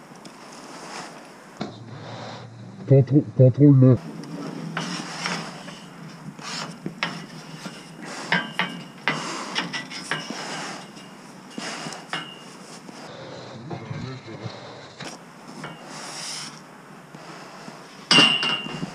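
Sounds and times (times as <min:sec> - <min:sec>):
hands scraping steel bars: 0:04.1 - 0:13.1, 0:15.0 - 0:18.9
metallic clinks and knocks: 0:04.8 - 0:12.6, 0:18.1 - 0:18.9.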